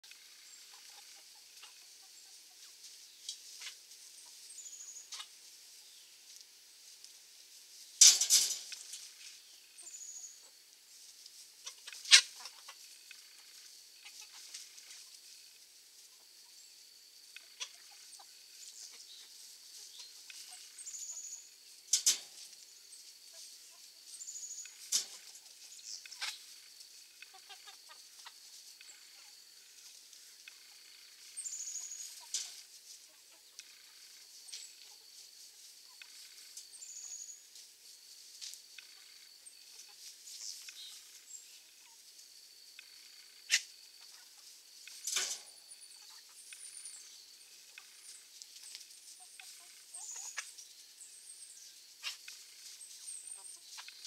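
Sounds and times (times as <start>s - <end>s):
chickens clucking softly: 0.1s - 6.4s, 8.0s - 37.2s, 47.5s - 50.6s, 52.0s - 54.0s.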